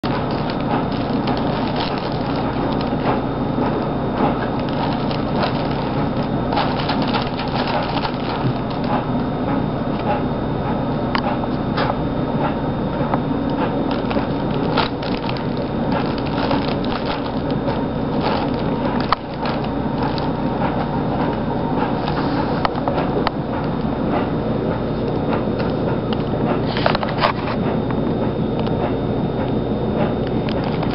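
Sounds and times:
fabric tunnel crackling and rustling: 0:00.0 - 0:09.2, 0:13.2 - 0:22.2.

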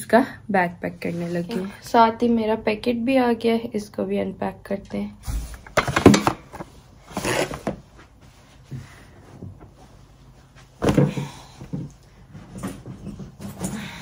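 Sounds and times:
blankets and clothes rustling: 0:06.8 - 0:14.0.

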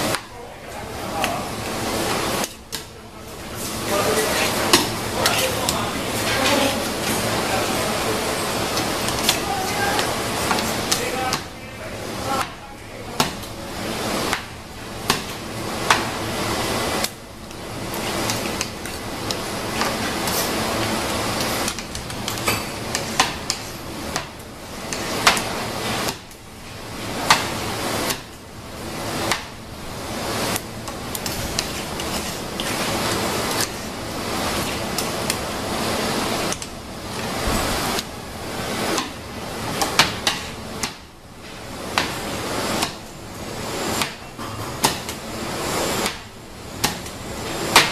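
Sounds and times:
spatula scraping wet paste: 0:03.3 - 0:11.6, 0:17.0 - 0:26.2, 0:30.3 - 0:35.5.

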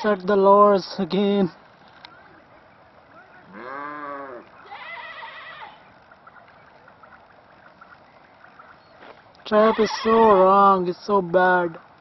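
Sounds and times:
low animal call: 0:03.4 - 0:06.4.

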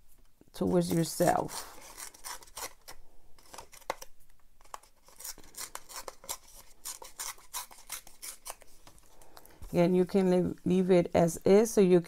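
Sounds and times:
paper tearing: 0:00.8 - 0:04.0, 0:04.7 - 0:08.7.

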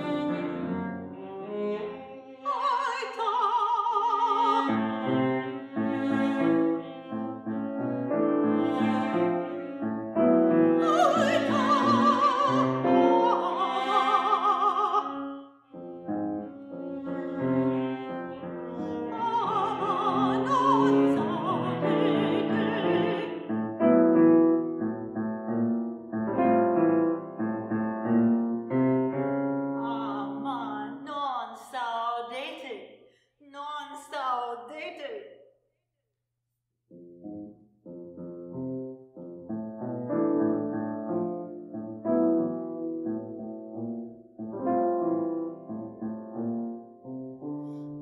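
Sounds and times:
piano accompaniment: 0:00.0 - 0:02.0, 0:04.6 - 0:31.0, 0:36.9 - 0:48.0
operatic soprano singing: 0:02.4 - 0:04.8, 0:10.8 - 0:15.5, 0:18.8 - 0:23.5, 0:29.8 - 0:32.2.

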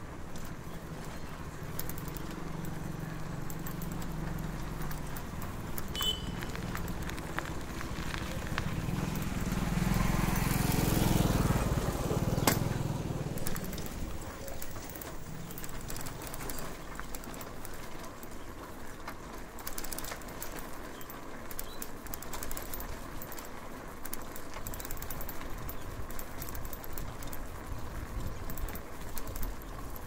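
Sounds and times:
low motor hum: 0:00.0 - 0:17.6
bicycle clicks and rattles: 0:00.0 - 0:30.0.

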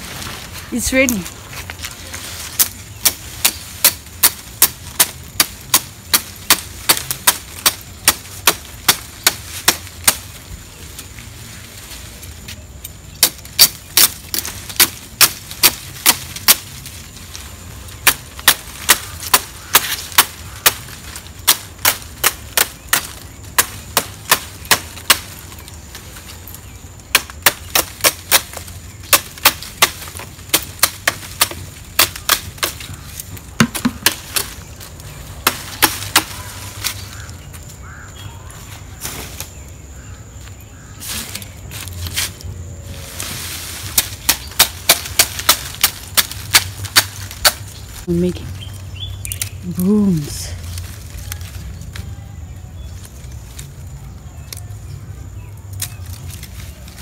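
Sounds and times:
blade chopping palm leaves: 0:02.4 - 0:10.4, 0:13.1 - 0:26.0, 0:27.0 - 0:37.2, 0:43.1 - 0:48.3.

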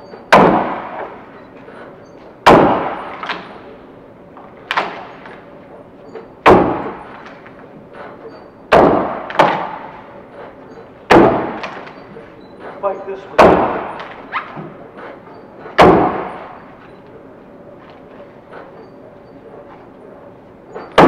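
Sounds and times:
axe chopping into a log: 0:00.3 - 0:01.1, 0:02.4 - 0:03.4, 0:06.5 - 0:07.0, 0:08.7 - 0:09.9, 0:11.1 - 0:11.8, 0:13.4 - 0:13.9, 0:15.8 - 0:16.3.

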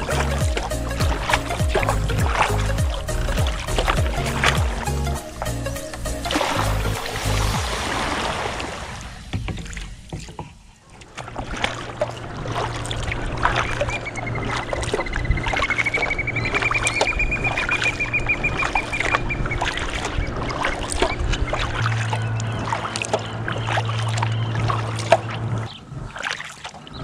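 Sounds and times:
low steady hum: 0:00.0 - 0:27.0
paddle splashing water: 0:00.0 - 0:27.0.

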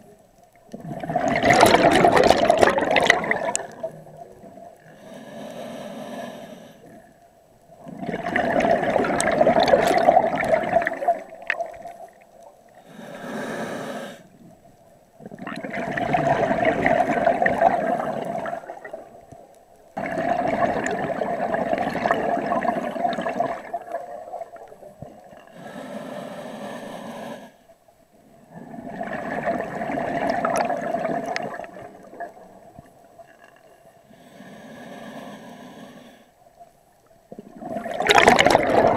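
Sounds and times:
rush of exhaled bubbles: 0:00.7 - 0:04.7, 0:07.8 - 0:12.2, 0:15.2 - 0:19.3, 0:20.0 - 0:25.4, 0:28.5 - 0:33.2, 0:37.3 - 0:38.9
regulator inhalation hiss: 0:04.9 - 0:07.0, 0:12.8 - 0:14.4, 0:25.5 - 0:27.7, 0:34.1 - 0:36.4.

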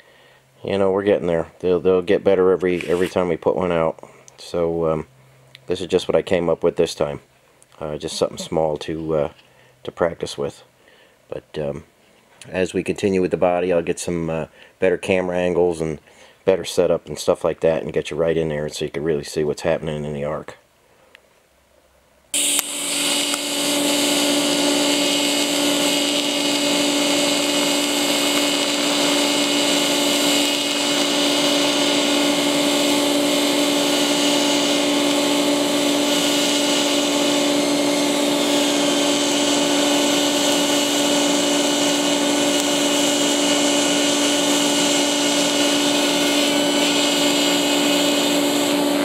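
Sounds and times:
welding arc buzzing and hissing: 0:00.0 - 0:04.9, 0:07.8 - 0:09.3, 0:22.3 - 0:49.0.

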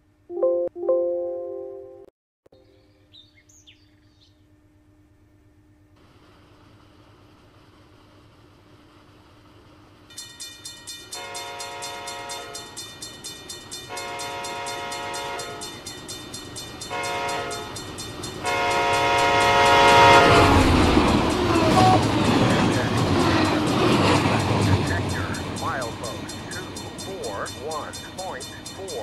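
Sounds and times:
locomotive rumble and rail noise: 0:04.4 - 0:29.0
rapidly repeating crossing bell: 0:10.1 - 0:19.5, 0:20.9 - 0:29.0
locomotive air horn blasts: 0:11.2 - 0:12.6, 0:13.9 - 0:15.7, 0:16.9 - 0:17.7, 0:18.4 - 0:23.1.

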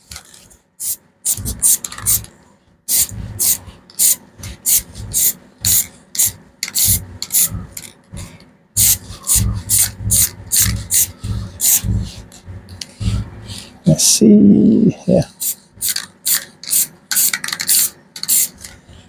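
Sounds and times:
spray paint hissing from aerosol can: 0:00.8 - 0:02.3, 0:02.9 - 0:07.6, 0:08.8 - 0:12.2, 0:15.4 - 0:18.6.

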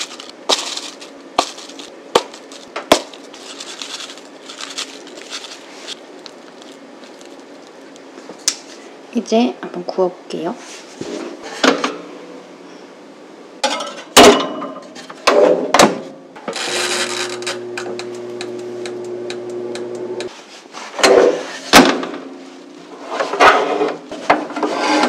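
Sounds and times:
oven humming: 0:00.0 - 0:10.4, 0:16.1 - 0:20.4.

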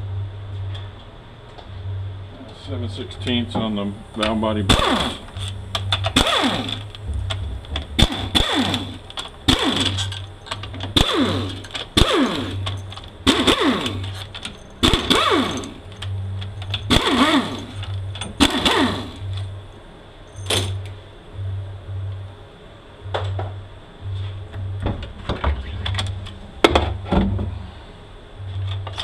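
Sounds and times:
pneumatic tool whining in bursts: 0:04.7 - 0:07.0, 0:07.9 - 0:15.9, 0:16.8 - 0:19.4.

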